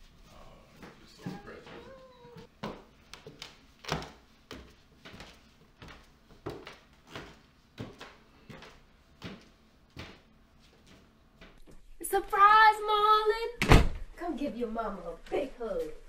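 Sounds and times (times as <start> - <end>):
footsteps on wooden stairs: 0.8 - 11.6.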